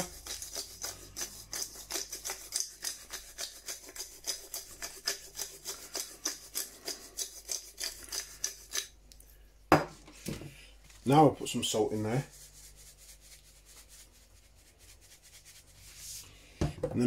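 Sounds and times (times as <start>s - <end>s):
pepper grinder crunching: 0.0s - 8.9s.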